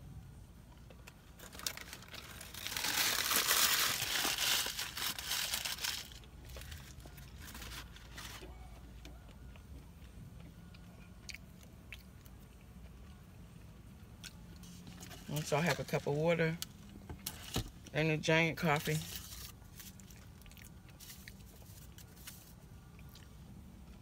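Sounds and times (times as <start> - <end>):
paper wrapper crinkling: 1.4 - 8.5, 18.6 - 20.2.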